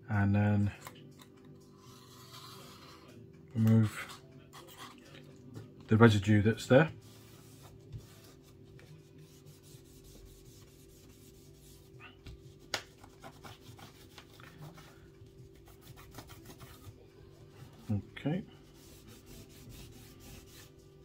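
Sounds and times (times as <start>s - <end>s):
faint rubbing and scraping: 15.7s - 21.0s.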